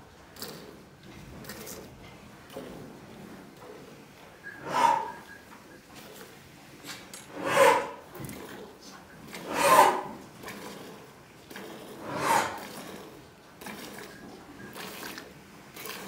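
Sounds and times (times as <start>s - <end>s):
cow breathing out noisily: 4.6s - 5.3s, 7.3s - 8.0s, 9.4s - 10.8s, 11.5s - 13.2s.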